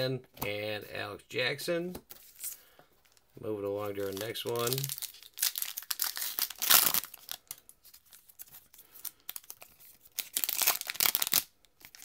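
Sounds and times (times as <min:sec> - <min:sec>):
wrapper rustling: 0:02.1 - 0:12.0
wrapper crinkling and tearing: 0:03.9 - 0:12.0.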